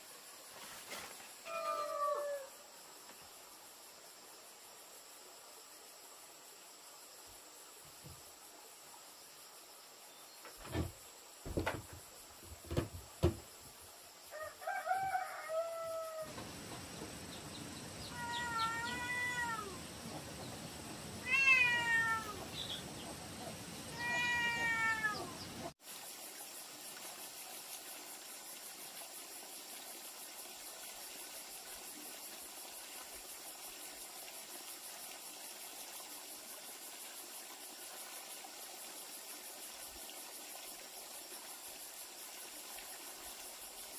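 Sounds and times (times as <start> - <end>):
insects chirring: 0.0 - 43.9
dull knocks: 10.5 - 13.5
cat meowing: 18.1 - 19.8, 21.2 - 22.4, 23.9 - 25.4.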